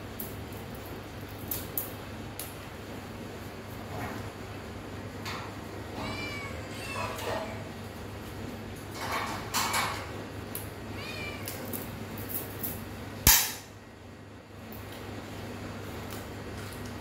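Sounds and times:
cat meowing: 0:06.0 - 0:07.6, 0:10.9 - 0:11.8.

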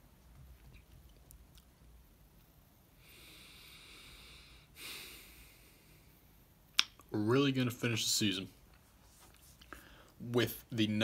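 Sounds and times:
person breathing: 0:02.9 - 0:06.3, 0:09.6 - 0:10.2.

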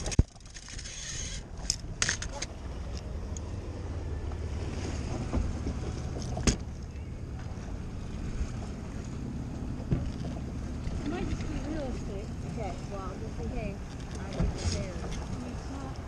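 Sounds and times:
outboard motor running: 0:00.0 - 0:16.0
water noise: 0:00.0 - 0:16.0
wind: 0:00.0 - 0:16.0
knocks on a boat: 0:05.1 - 0:06.7, 0:09.8 - 0:10.5.

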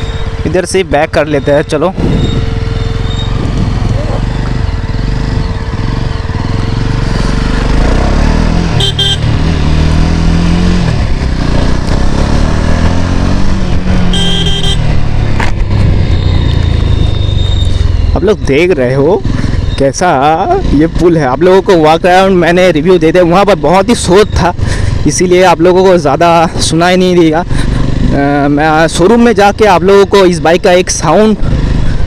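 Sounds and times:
motorcycle engine running: 0:00.0 - 0:32.0
wind on microphone: 0:01.9 - 0:02.5, 0:03.3 - 0:04.3
short high-pitched beeps: 0:14.1 - 0:14.8.

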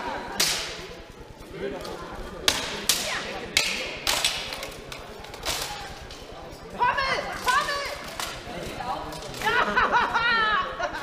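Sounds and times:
swords clashing on armour: 0:02.5 - 0:04.7.

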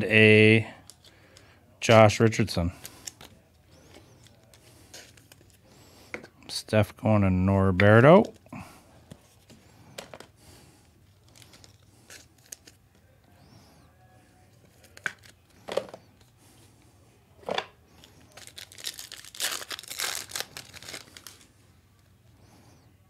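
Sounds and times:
foil wrapper tearing and crinkling: 0:18.0 - 0:21.5.

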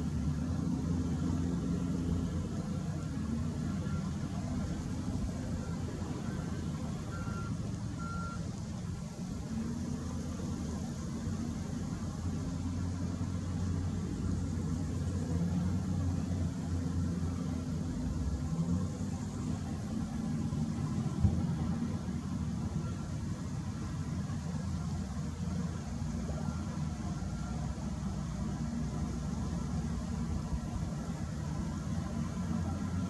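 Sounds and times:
diesel engine under load: 0:00.0 - 0:33.0
reversing alarm beeps: 0:03.8 - 0:04.5, 0:05.5 - 0:08.4.

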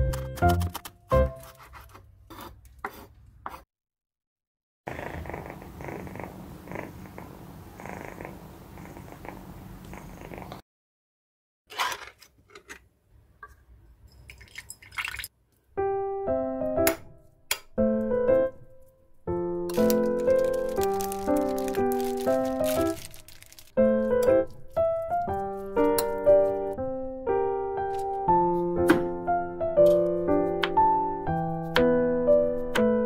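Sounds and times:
cat purring: 0:04.9 - 0:10.6.

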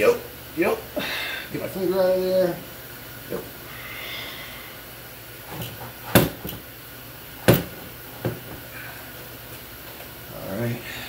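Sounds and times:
metal clunks and knocks: 0:05.5 - 0:06.6, 0:07.4 - 0:08.6.

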